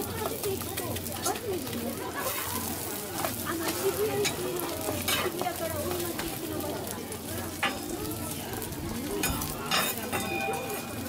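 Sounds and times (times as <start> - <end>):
food sizzling on griddle: 0.0 - 11.0
metal spatulas clacking and scraping: 7.6 - 7.9, 9.2 - 11.0.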